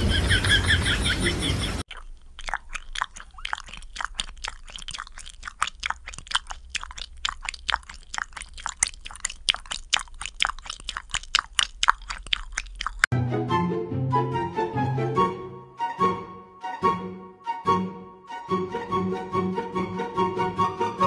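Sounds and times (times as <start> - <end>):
cats licking wet fur: 1.8 - 13.1.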